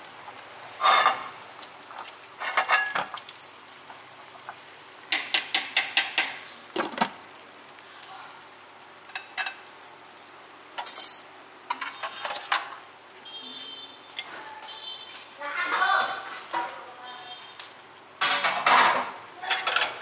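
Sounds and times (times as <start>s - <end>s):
steady low hiss: 0.0s - 14.2s
metal utensils clinking on a pot: 0.8s - 1.3s, 2.4s - 3.2s, 9.1s - 9.6s, 10.8s - 12.7s, 18.2s - 20.0s.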